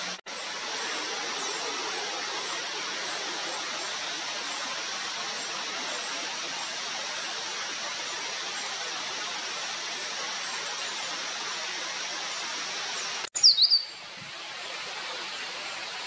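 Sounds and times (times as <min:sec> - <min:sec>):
flowing water rushing: 0:00.0 - 0:16.0.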